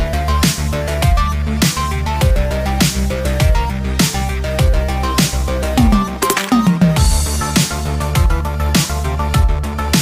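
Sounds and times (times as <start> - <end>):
stepping synth melody: 5.8 - 7.2.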